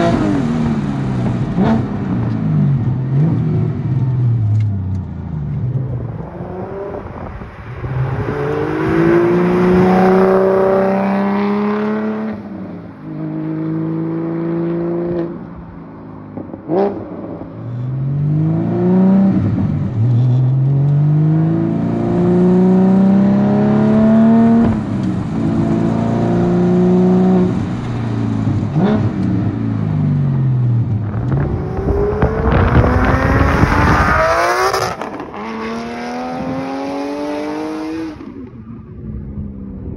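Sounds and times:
car engine accelerating hard: 5.9 - 12.4, 18.0 - 38.4.

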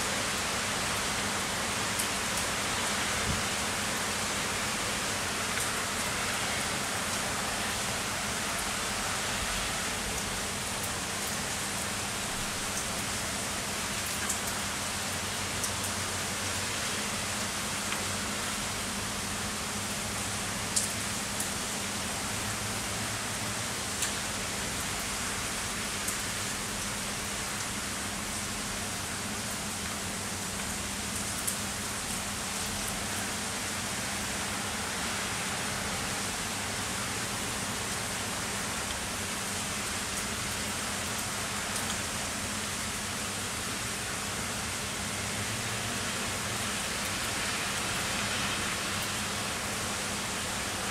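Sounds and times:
heavy rain: 0.0 - 50.9
raindrops tapping a surface: 10.1 - 13.2, 13.9 - 16.1, 19.9 - 21.6, 26.0 - 27.8, 29.4 - 33.3, 37.8 - 42.6.

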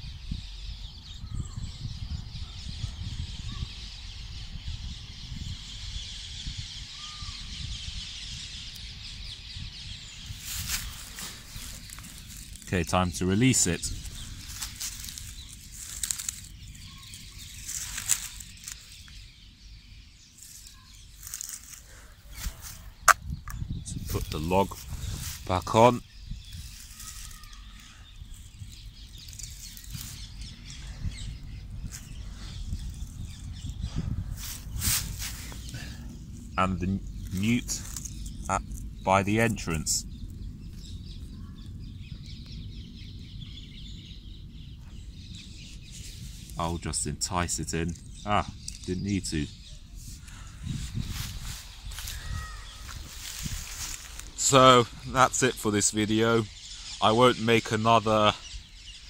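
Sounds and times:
dry leaves rustling and crackling: 10.2 - 19.3, 20.2 - 23.0, 24.0 - 31.1, 34.4 - 39.8, 50.2 - 55.7
twigs snapping: 10.4 - 12.8, 13.6 - 19.2, 20.4 - 25.5, 26.5 - 30.9, 37.1 - 39.8, 50.2 - 54.4.

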